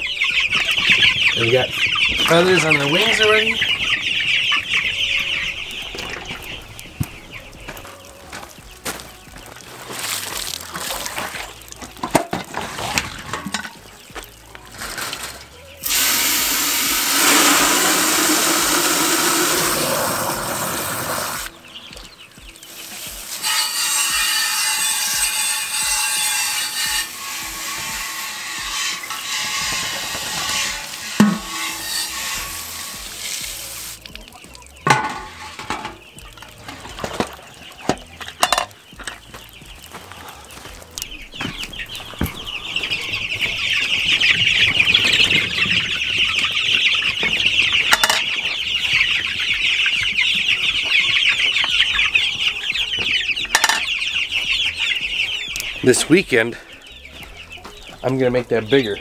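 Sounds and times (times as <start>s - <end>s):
chicks peeping: 0.0s - 59.0s
steady hiss: 15.8s - 21.6s, 26.8s - 34.2s
metal poultry waterer knocks: 26.9s - 33.1s, 34.8s - 36.0s, 36.7s - 39.2s, 46.4s - 49.1s, 53.5s - 53.9s.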